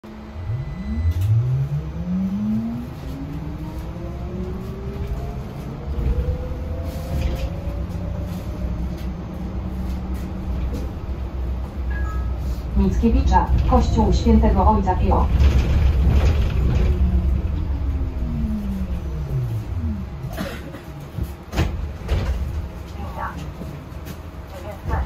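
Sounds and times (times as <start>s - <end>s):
road and tyre rumble: 0.0s - 25.0s
electric motor whine rising: 0.2s - 5.8s.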